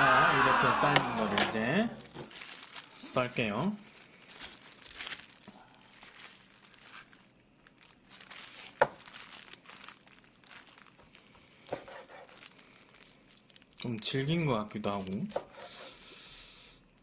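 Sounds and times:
plastic glove crinkling: 0.1 - 15.5
knife slicing meat: 11.7 - 12.4, 15.3 - 15.9.

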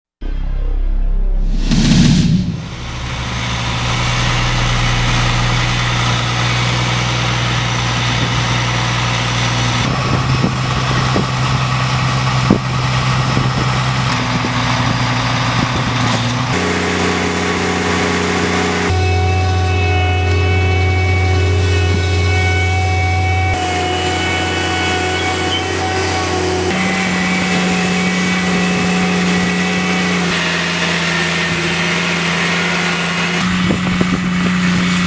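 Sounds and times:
short whoosh: 0.2 - 7.9
engine running steadily: 1.5 - 35.0.

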